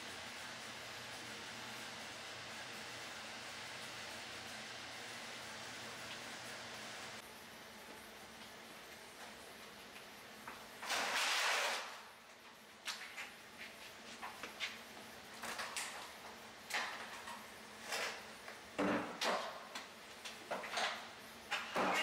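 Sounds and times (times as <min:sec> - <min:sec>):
water heater scraping across floor: 0:10.8 - 0:12.0.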